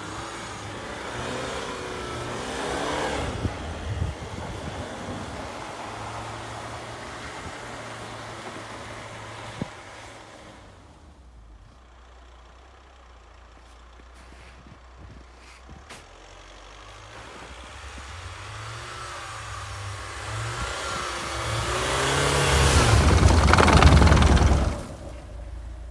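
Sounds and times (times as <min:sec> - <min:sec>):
tyres spinning in snow: 0:00.1 - 0:25.9
pickup engine revving: 0:16.3 - 0:25.9.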